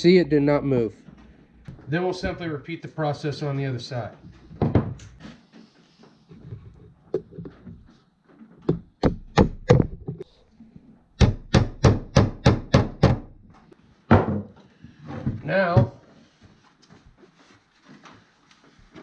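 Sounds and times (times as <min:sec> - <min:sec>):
hammer tapping nails: 0:08.6 - 0:09.9, 0:11.2 - 0:13.3.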